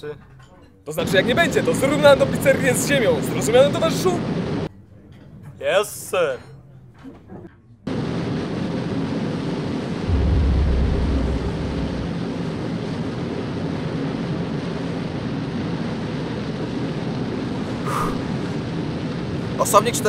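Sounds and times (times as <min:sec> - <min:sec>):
engine hum: 0:10.1 - 0:12.7
wind rushing: 0:10.1 - 0:12.8
deep explosion boom: 0:10.1 - 0:13.0.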